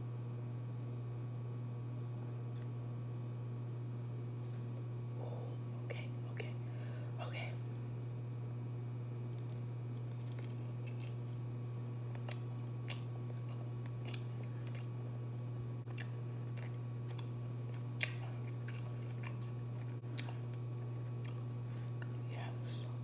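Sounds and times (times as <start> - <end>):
steady low hum: 0.0 - 23.0
person chewing crunchy food: 9.2 - 23.0.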